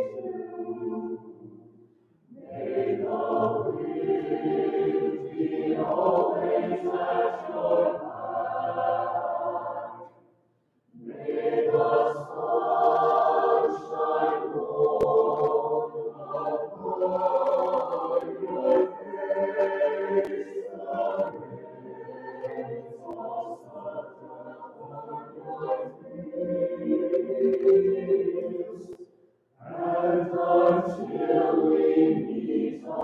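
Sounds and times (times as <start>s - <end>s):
mixed choir singing: 0.0s - 1.5s, 2.3s - 10.2s, 11.0s - 29.0s, 29.6s - 33.0s.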